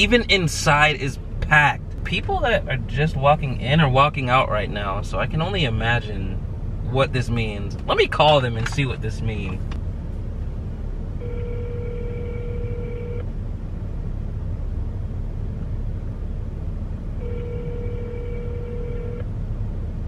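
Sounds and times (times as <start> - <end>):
low rumble inside car: 0.0 - 20.0
telephone ringback tone: 11.2 - 13.2, 17.2 - 19.2.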